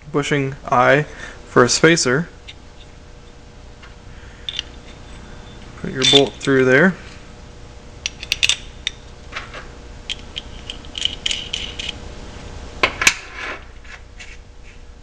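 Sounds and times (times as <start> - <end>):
metal parts clicking and clinking: 4.4 - 5.2, 5.9 - 6.6, 8.0 - 9.5, 10.1 - 12.0
nut spinning on bolt threads: 4.5 - 6.6, 10.1 - 12.0.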